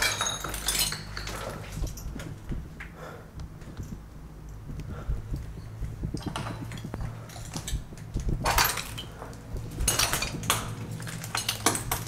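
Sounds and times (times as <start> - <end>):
debris clinking and scraping: 0.0 - 2.4, 6.2 - 12.0
footsteps crunching over rubble: 5.2 - 12.0.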